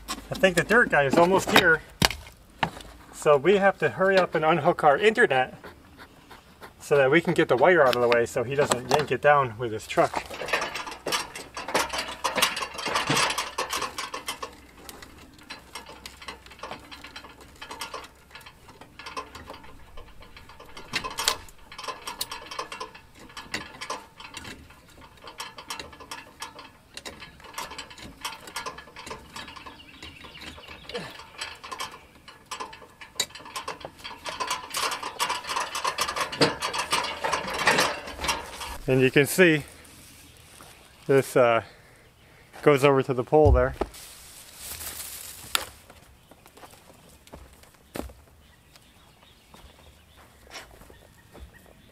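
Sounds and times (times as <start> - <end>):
cable clicking and rattling: 7.2 - 41.2.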